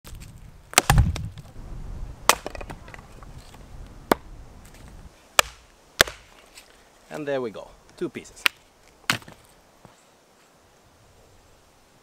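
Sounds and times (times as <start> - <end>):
hatchet chopping wood: 0.7 - 1.3, 2.3 - 2.8, 5.4 - 6.3.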